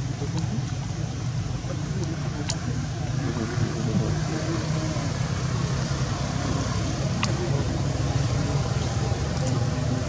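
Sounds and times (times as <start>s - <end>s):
low background rumble: 0.0s - 10.0s.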